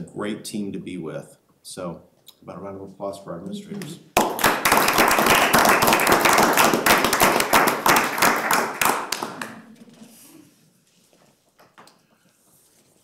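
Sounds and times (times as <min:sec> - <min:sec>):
roomful of people clapping: 0:03.8 - 0:10.1.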